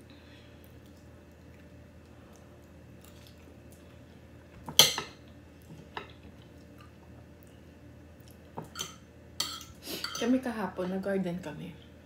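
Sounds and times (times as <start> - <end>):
cutlery clinking on a plate: 4.7 - 5.2.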